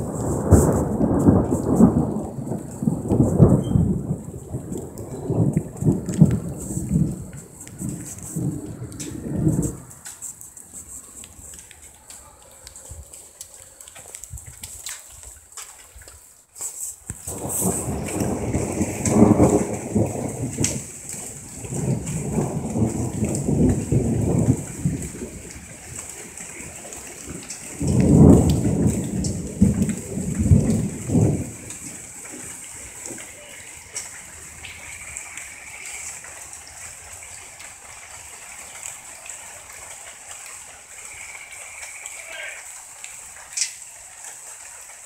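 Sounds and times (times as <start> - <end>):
rolls of thunder: 0.0 - 10.1, 17.2 - 37.0
heavy rain: 0.0 - 45.0.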